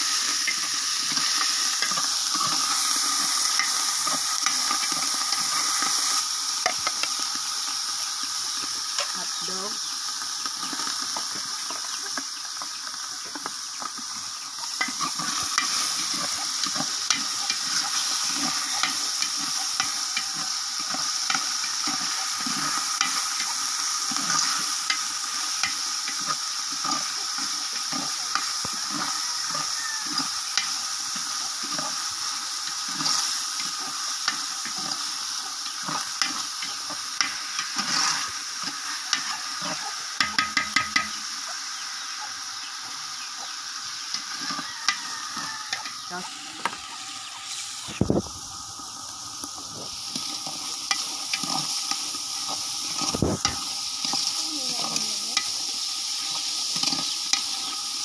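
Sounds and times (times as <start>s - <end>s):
meat sizzling in oil: 0.0s - 58.0s
steady high hiss: 0.0s - 58.0s
metal spatula scraping pot: 37.2s - 41.2s, 50.1s - 55.5s.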